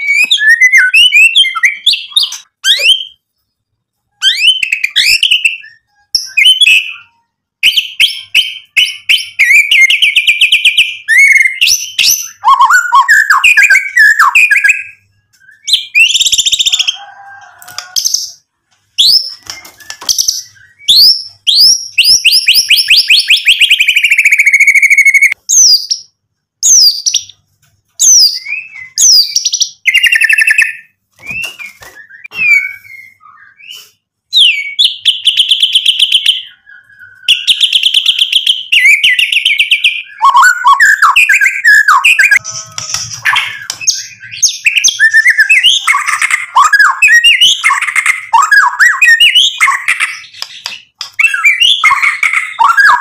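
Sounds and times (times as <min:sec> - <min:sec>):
songbird singing: 0:00.0 - 0:53.0.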